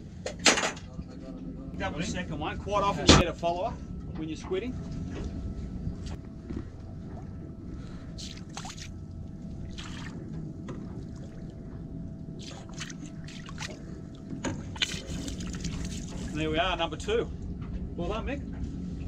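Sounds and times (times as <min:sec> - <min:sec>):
faint hum: 0:00.0 - 0:19.0
low rumble: 0:00.9 - 0:19.0
squid squirting water: 0:08.2 - 0:09.0, 0:09.6 - 0:10.2, 0:12.4 - 0:16.4
water splashing and trickling: 0:08.2 - 0:10.3, 0:10.9 - 0:11.6, 0:12.3 - 0:16.6.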